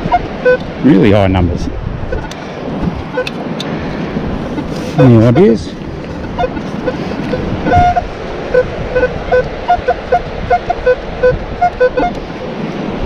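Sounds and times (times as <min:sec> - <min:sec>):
metal detector beeps: 0:00.0 - 0:00.7, 0:03.1 - 0:03.4, 0:05.0 - 0:05.6, 0:06.3 - 0:12.2
surf: 0:00.0 - 0:13.0
wind: 0:00.0 - 0:13.0.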